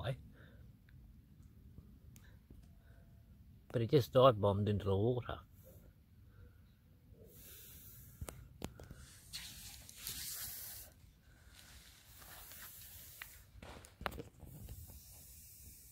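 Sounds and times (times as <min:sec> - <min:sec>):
hissing rushes: 0:09.0 - 0:11.0
scuffing on dry sand: 0:11.5 - 0:14.0.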